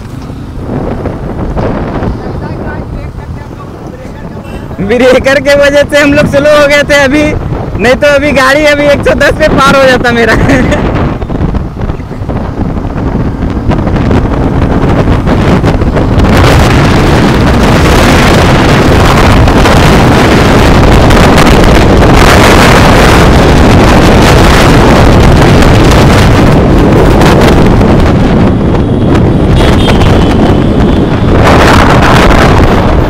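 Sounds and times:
wind buffeting microphone: 0:00.0 - 0:33.0
motorcycle engine: 0:10.8 - 0:33.0.

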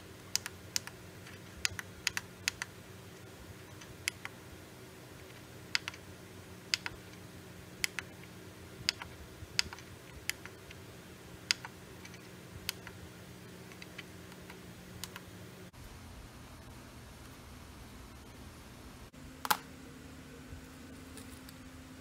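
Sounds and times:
faint low hum: 0:00.0 - 0:22.0
push buttons clicking: 0:00.2 - 0:02.7, 0:03.6 - 0:04.4, 0:05.3 - 0:06.0, 0:06.7 - 0:07.2, 0:07.8 - 0:10.8, 0:11.4 - 0:13.0, 0:13.6 - 0:15.3.

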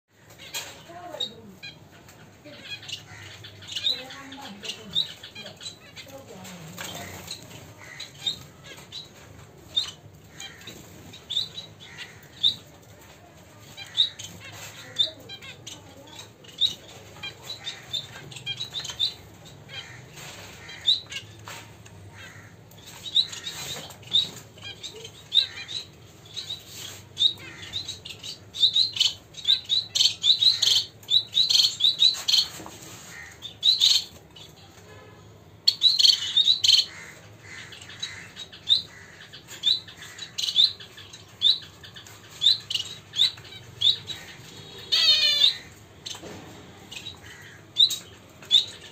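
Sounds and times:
finches chirping: 0:00.2 - 0:12.8, 0:22.2 - 0:34.6, 0:35.6 - 0:46.2.

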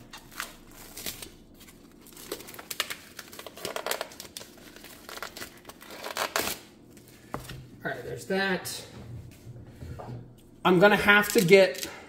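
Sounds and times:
plastic film crinkling and tearing: 0:00.0 - 0:07.1, 0:11.1 - 0:11.9.

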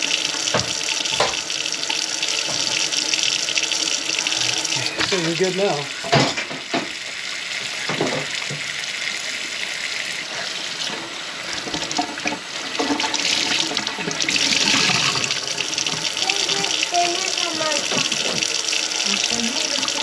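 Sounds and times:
faucet running into sink: 0:00.0 - 0:20.0.

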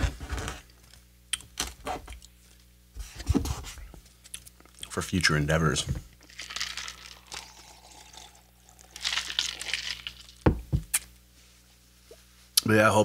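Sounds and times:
person sipping from a cup: 0:06.9 - 0:09.7.

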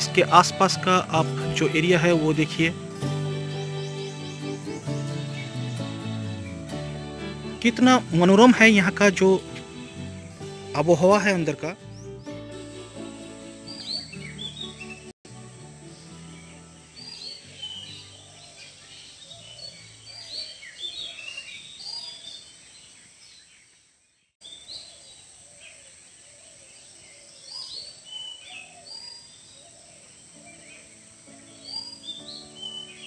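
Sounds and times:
soft background music: 0:00.0 - 0:19.8, 0:30.3 - 0:33.0
small birds chirping: 0:00.0 - 0:33.0.

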